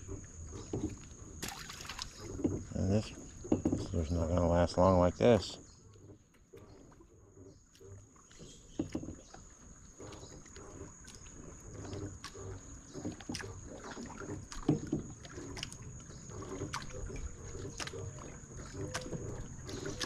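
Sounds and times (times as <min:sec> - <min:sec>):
small waves lapping against dock: 0:00.0 - 0:20.0
sharp knocks and clicks: 0:02.3 - 0:04.1, 0:07.8 - 0:09.4, 0:11.9 - 0:15.8.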